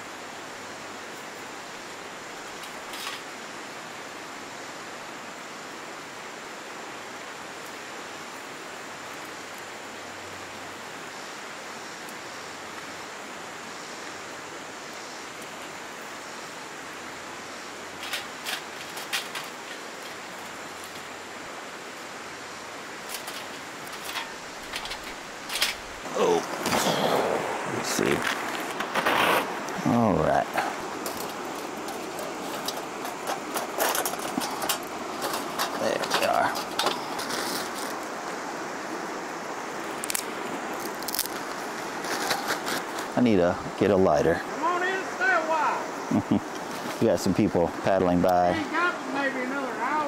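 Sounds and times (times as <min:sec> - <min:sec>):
flowing river rushing: 0:00.0 - 0:50.0
dry twigs snapping: 0:39.9 - 0:43.1.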